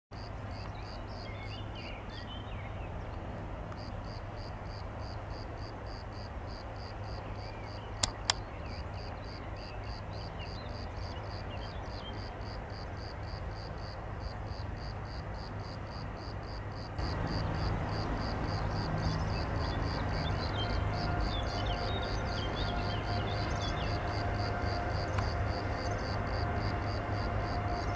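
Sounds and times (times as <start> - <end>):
birds chirping: 7.3 - 12.2, 17.0 - 26.3
sharp clicks: 8.0 - 8.4
electric locomotive hum: 14.0 - 27.9.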